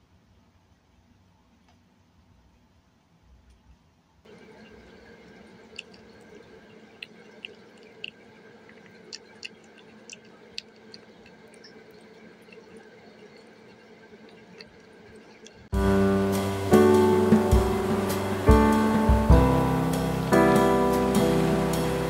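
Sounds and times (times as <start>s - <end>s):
steady low hum: 4.2s - 21.9s
kitten chewing wet food: 4.3s - 15.7s.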